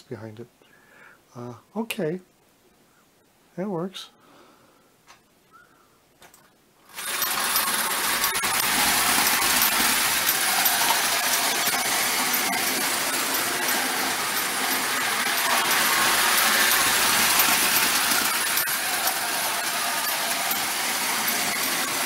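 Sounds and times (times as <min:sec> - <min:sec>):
wind-up toy train whirring: 0:06.9 - 0:22.0.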